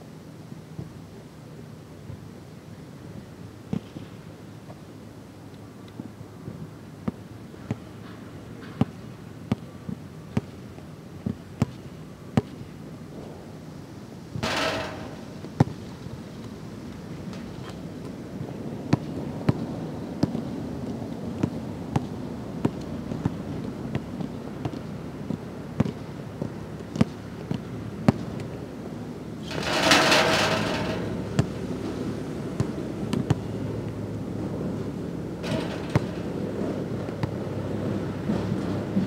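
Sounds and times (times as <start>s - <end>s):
loud rattling noise: 14.4s - 15.6s, 29.4s - 32.2s, 35.4s - 37.0s
basketball bouncing on court: 14.4s - 15.8s, 29.5s - 31.6s, 32.6s - 33.5s, 35.4s - 36.4s, 37.0s - 37.4s.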